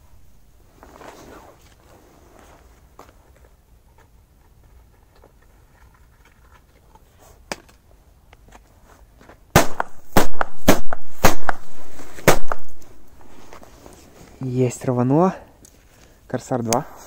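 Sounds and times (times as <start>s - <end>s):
firecrackers banging: 9.6s - 13.1s.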